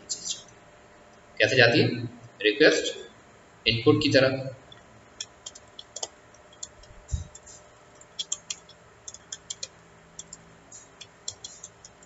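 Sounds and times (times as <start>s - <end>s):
keyboard key clicks: 8.1s - 10.4s.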